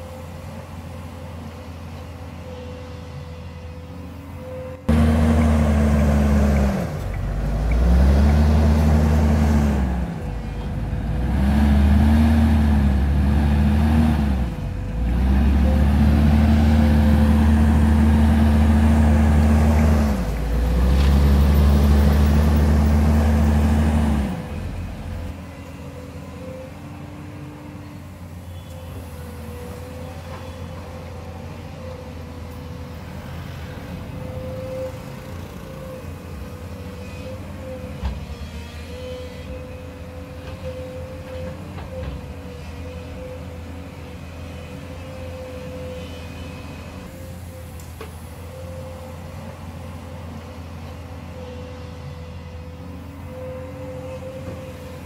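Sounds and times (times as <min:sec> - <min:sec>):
excavator engine hum: 0:00.0 - 0:55.0
diesel engine revving: 0:04.9 - 0:25.4.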